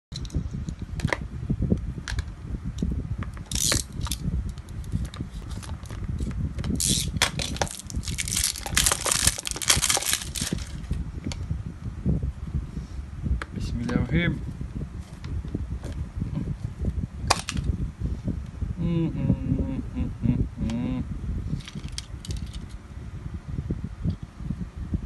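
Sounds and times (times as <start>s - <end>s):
plastic case crinkling and clicking: 6.6s - 10.8s.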